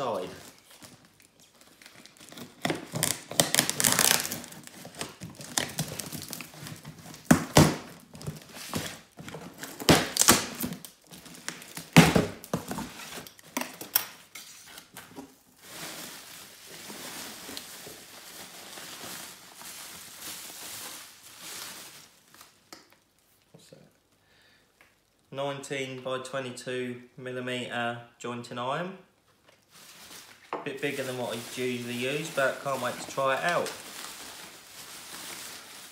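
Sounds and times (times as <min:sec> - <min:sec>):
bubble wrap crinkling: 0:00.0 - 0:23.4, 0:29.3 - 0:35.9
packing tape pulled away: 0:00.7 - 0:07.8.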